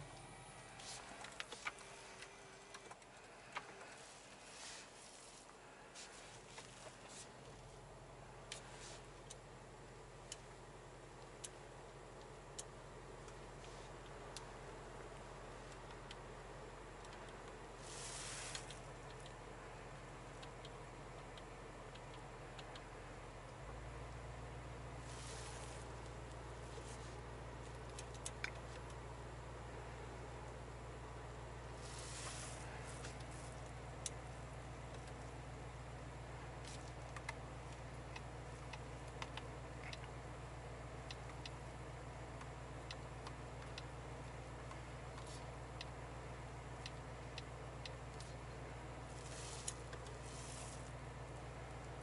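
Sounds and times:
low cabin hum: 0.0 - 52.0
light ticks: 11.2 - 11.6, 15.7 - 16.2, 17.0 - 17.6, 18.5 - 19.4, 20.3 - 24.2, 36.6 - 40.2, 41.0 - 41.6, 42.3 - 46.0, 46.8 - 48.4.

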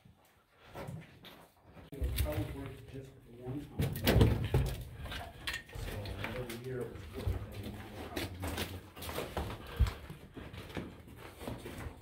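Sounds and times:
footsteps on dirt and rock: 5.8 - 12.0.

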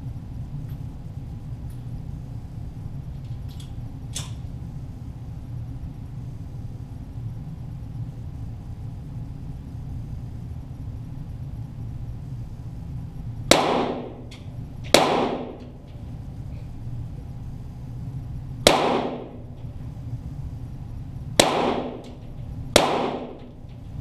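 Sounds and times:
low hum: 0.0 - 24.0
pistol shots echoing indoors: 13.5 - 16.0, 18.6 - 19.8, 21.4 - 24.0.

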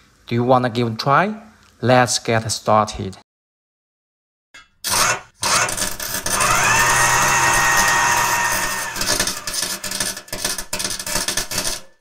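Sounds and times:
power drill whining: 4.9 - 10.5.

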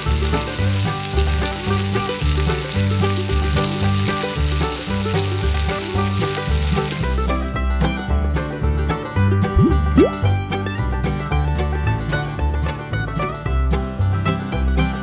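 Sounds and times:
dough deep-frying in oil: 0.0 - 7.5.

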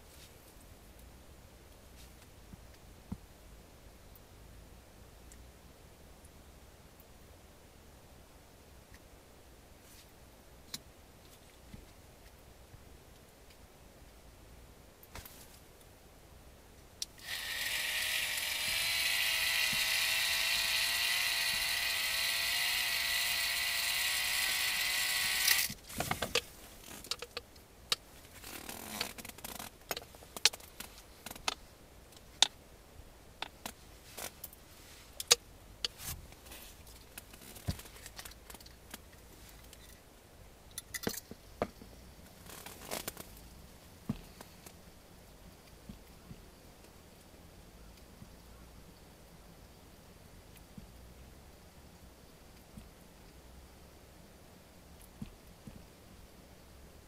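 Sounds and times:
electric fishing reel motor whining: 17.2 - 25.8.

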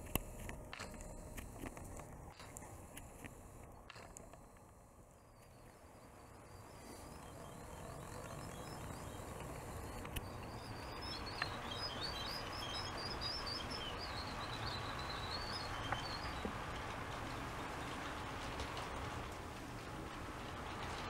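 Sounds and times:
high bird-like chirps: 5.2 - 16.7.

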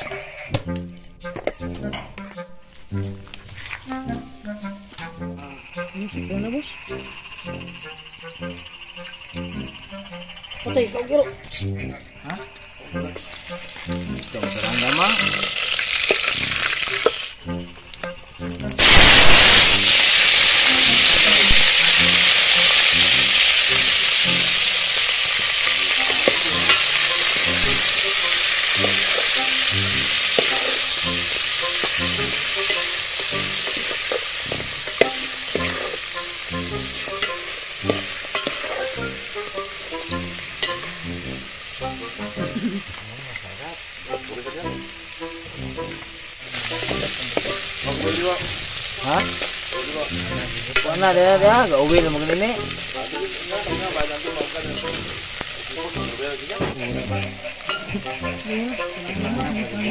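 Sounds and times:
meat sizzling in pot: 0.0 - 0.6, 3.8 - 59.9
spoon scraping pot: 37.0 - 39.0.

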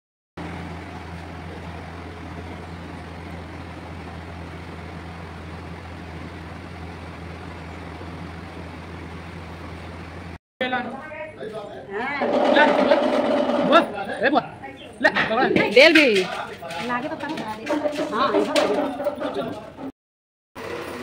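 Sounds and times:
low motor hum: 0.4 - 10.4.

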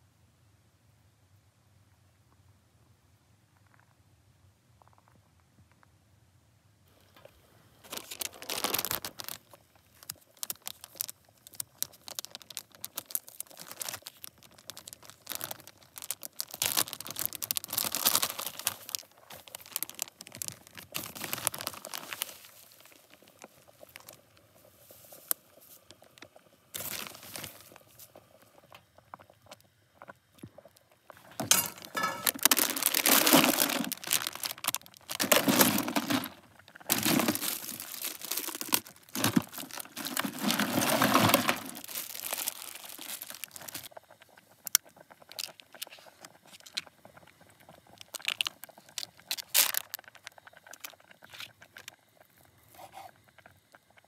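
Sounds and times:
plastic bags crinkling: 7.8 - 24.2, 26.8 - 28.1, 31.2 - 43.9, 47.9 - 51.9.

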